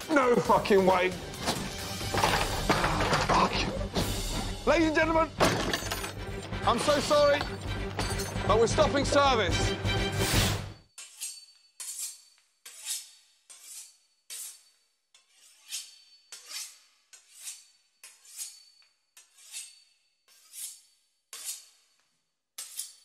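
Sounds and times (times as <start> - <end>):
knife sawing through pastry crust: 11.0 - 22.0.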